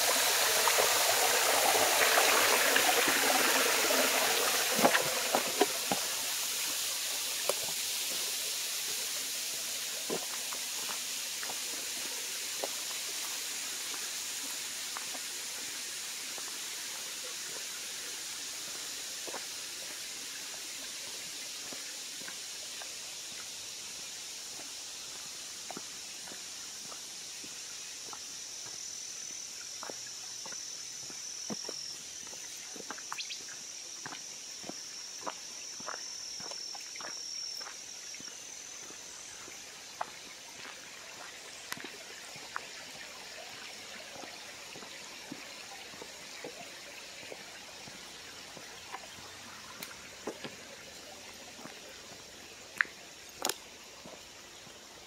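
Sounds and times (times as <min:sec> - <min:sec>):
high insect buzz: 0:00.0 - 0:44.0
creek water hissing: 0:00.0 - 0:55.0
footsteps crunching on dirt: 0:03.9 - 0:06.2, 0:24.5 - 0:42.6, 0:48.6 - 0:50.6.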